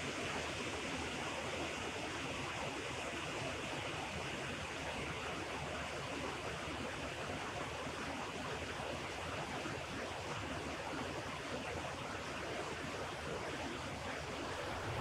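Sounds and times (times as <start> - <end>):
river rapids rushing: 14.4 - 15.0.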